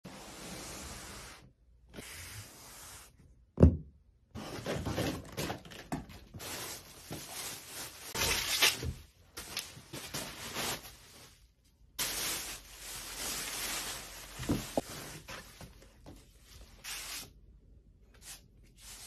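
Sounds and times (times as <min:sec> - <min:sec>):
cardboard and plastic rustling: 0:04.4 - 0:16.8.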